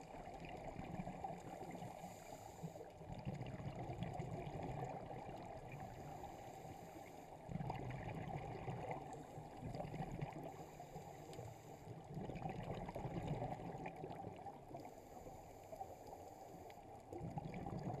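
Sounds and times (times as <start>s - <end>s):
exhaled breath bubbling: 17.1s - 18.0s.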